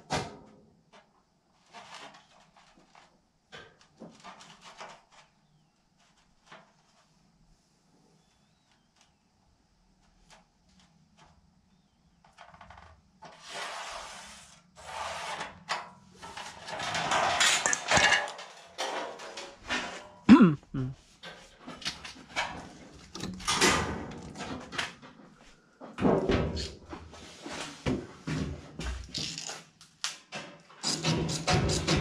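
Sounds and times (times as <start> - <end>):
metal sheets scraping on concrete: 13.4 - 15.6.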